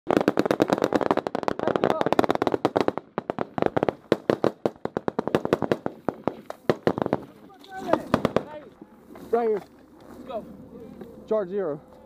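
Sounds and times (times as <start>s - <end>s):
rapid rifle gunfire: 0.1s - 7.3s, 7.9s - 8.6s.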